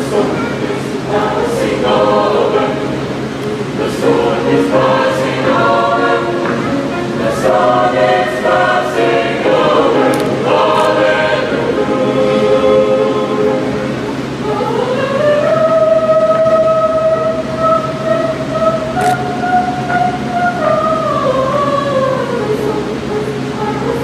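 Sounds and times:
piano accompaniment: 0.0s - 16.6s
choir singing gospel song: 0.0s - 24.0s.

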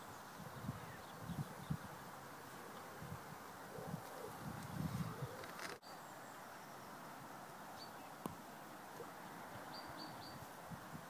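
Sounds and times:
low steady hiss: 0.0s - 11.0s
soft rustles: 3.8s - 5.8s.

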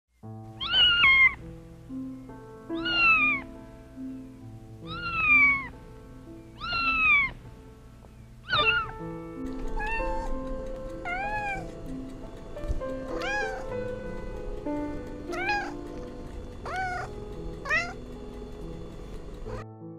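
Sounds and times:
gentle background music: 0.2s - 19.9s
cat meowing: 0.6s - 1.4s, 2.8s - 3.4s, 4.8s - 5.7s, 6.6s - 7.4s, 8.4s - 8.9s, 9.7s - 11.7s, 13.0s - 13.8s, 15.2s - 18.0s.

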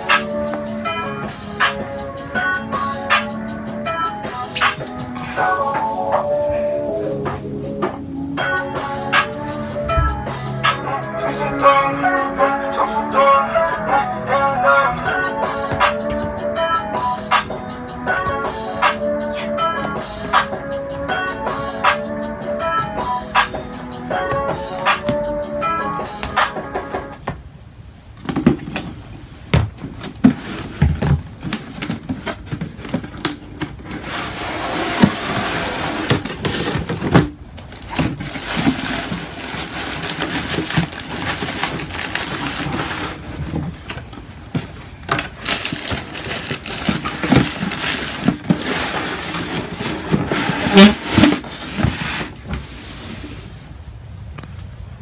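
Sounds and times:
knocks and low thumps: 9.9s - 10.4s
cardboard box handled: 29.8s - 52.8s
tissue paper rustling: 37.7s - 53.6s.

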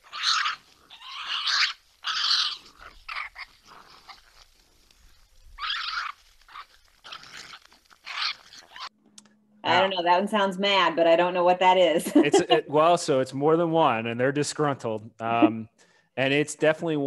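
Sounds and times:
raccoons screeching and snarling: 0.0s - 8.9s.

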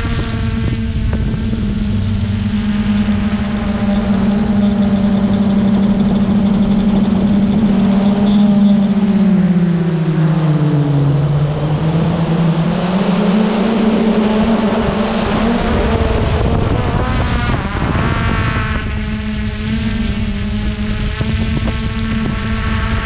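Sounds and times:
wavering high tones: 0.0s - 16.3s
drone propellers buzzing: 0.0s - 23.0s.

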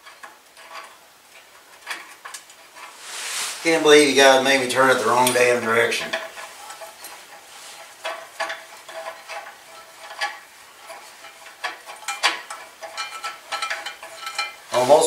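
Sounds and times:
hand tools clinking on metal: 3.9s - 15.0s.

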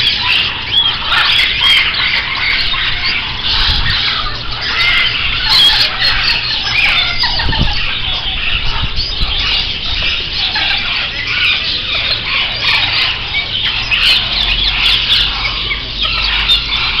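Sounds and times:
budgerigars chattering and chirping: 0.0s - 17.0s
steady low hum: 0.0s - 17.0s.

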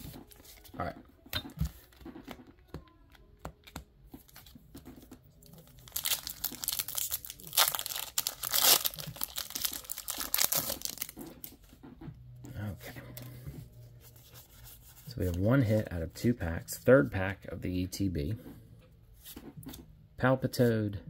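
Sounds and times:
foil wrapper tearing and crinkling: 5.5s - 11.2s.

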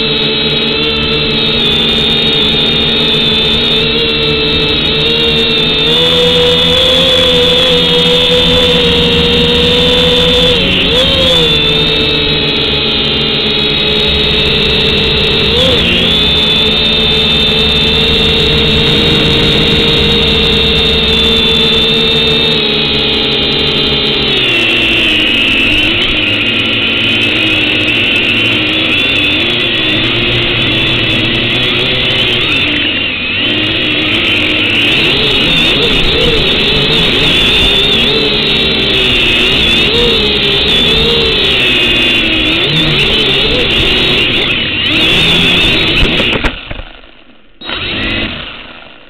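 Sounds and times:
drone propellers whining: 0.0s - 49.0s.

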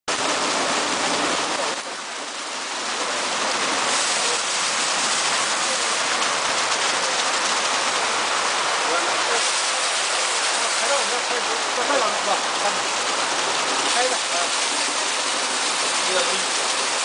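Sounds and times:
car wash spray and brushes: 0.1s - 17.0s.

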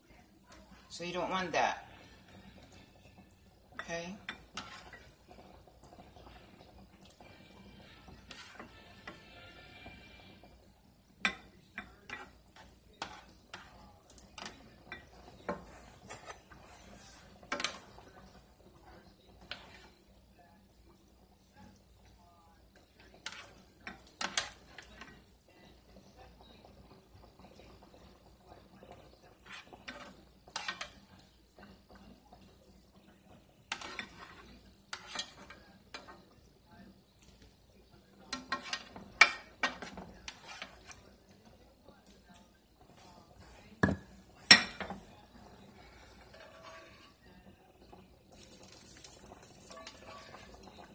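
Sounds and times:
utensil scraping a frying pan: 3.7s - 20.2s, 22.8s - 25.3s, 28.9s - 31.8s, 33.1s - 36.4s, 38.2s - 41.3s, 42.8s - 47.3s, 48.4s - 50.9s.

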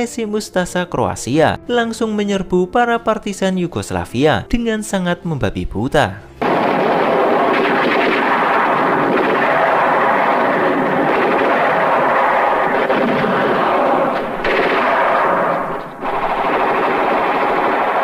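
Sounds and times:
rifle and machine-gun fire: 6.4s - 18.0s.

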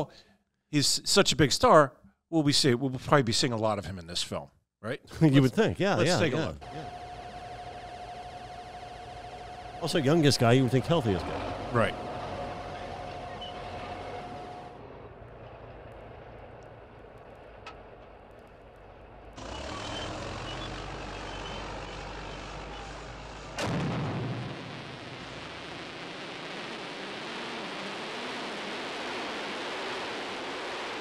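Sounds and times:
bulldozer diesel engine running: 6.0s - 23.8s
sudden loud burst: 19.4s - 31.0s.

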